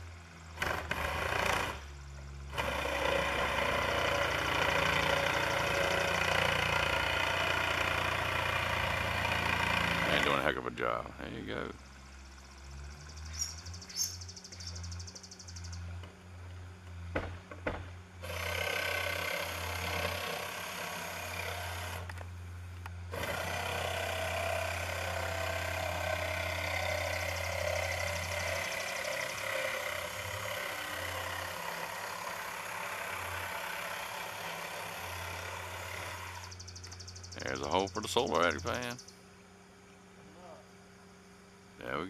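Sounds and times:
jigsaw cutting plywood: 2.6 - 10.5, 18.2 - 22.2, 23.2 - 36.5
knocks of saw: 17.1 - 22.2.

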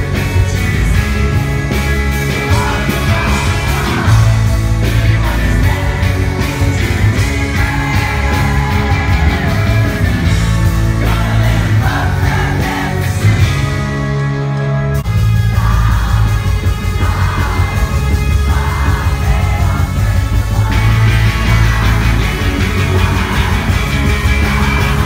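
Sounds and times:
rock band playing live: 0.0 - 25.0
singer singing into microphone: 2.4 - 9.9.

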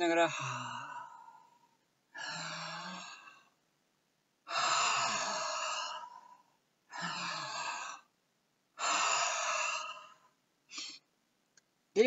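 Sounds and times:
man breathing forcefully: 8.8 - 11.0.

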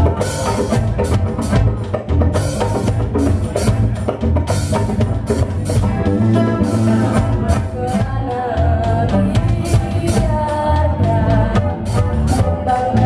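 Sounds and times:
drum kit: 0.0 - 13.0
electric bass: 0.0 - 13.0
hand drum: 0.0 - 13.0
acoustic guitar: 5.1 - 9.1
woman singing: 6.6 - 13.0.

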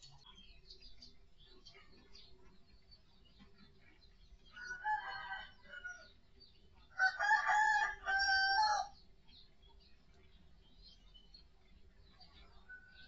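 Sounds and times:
rooster crowing: 4.6 - 6.1, 7.0 - 9.0.

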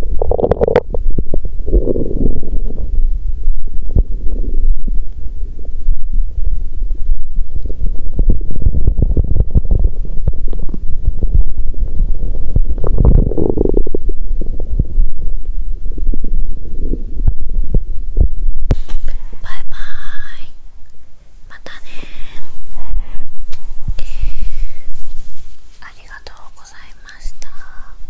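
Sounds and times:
stomach rumbling and gurgling: 0.0 - 20.4.

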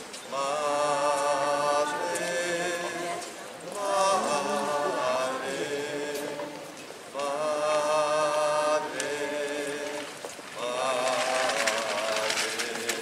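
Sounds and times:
voices singing a slow hymn: 0.0 - 13.0.

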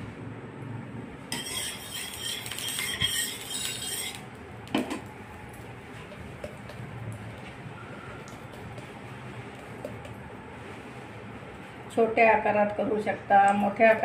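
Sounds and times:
steel spatula scraping steel: 1.3 - 4.3.

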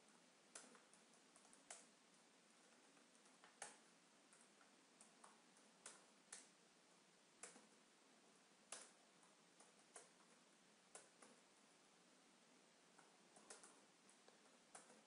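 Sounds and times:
low steady hiss: 0.0 - 15.0
keyboard keystrokes: 13.0 - 15.0.

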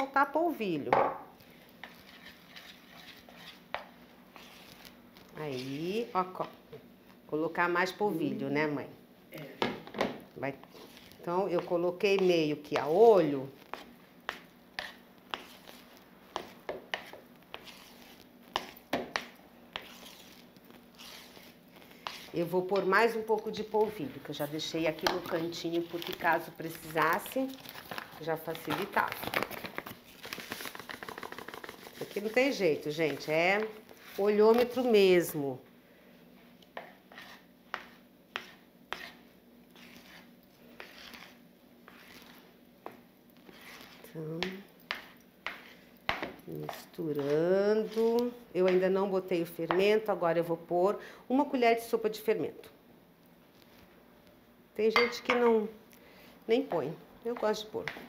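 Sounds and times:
spoon scraping a bowl: 1.5 - 6.1, 10.6 - 13.0, 13.6 - 23.7, 36.8 - 42.6, 43.4 - 48.9.

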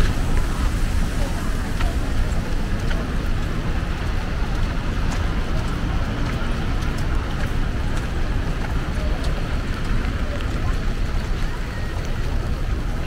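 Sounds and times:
city street noise: 0.0 - 13.0
constant low rumble: 0.0 - 13.0
steady rain: 0.0 - 13.0.

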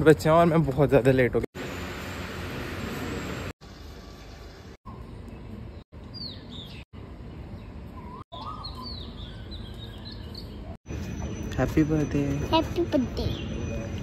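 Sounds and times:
birds chirping: 3.7 - 14.0.

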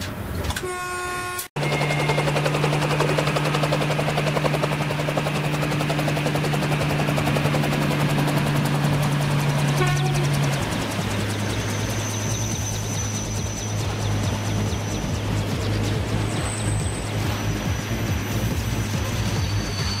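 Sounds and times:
electric train passing: 0.1 - 20.0.

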